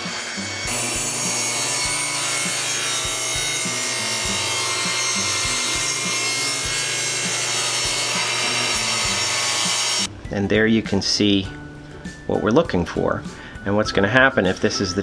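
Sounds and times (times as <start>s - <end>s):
saw motor hum: 0.0s - 10.1s
table saw cutting wood: 0.0s - 10.1s.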